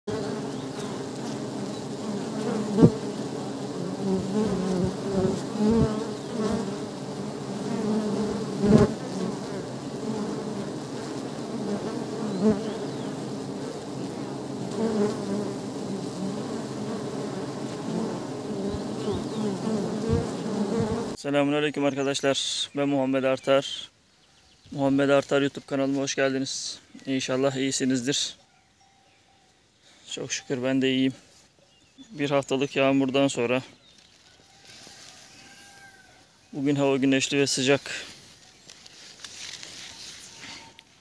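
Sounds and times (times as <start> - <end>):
honeybees buzzing: 0.0 - 21.2.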